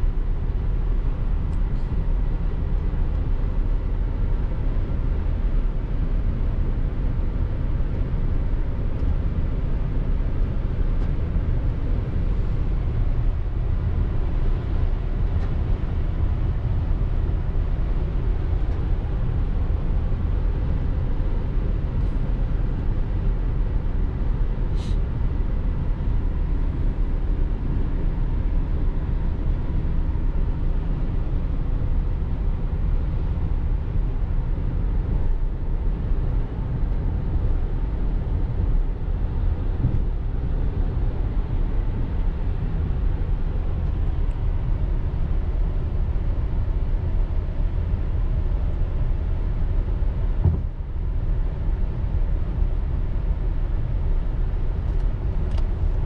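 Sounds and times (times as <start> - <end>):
car driving rumble: 0.0 - 56.0.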